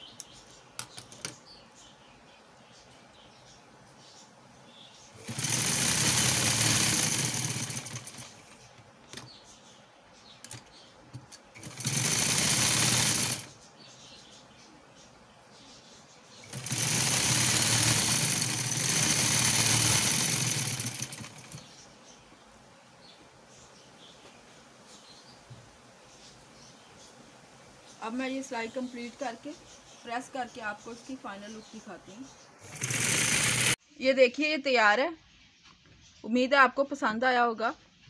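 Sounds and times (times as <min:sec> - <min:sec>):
sewing machine running: 0:05.2 - 0:08.6, 0:11.6 - 0:13.5, 0:16.4 - 0:21.7, 0:32.6 - 0:33.8.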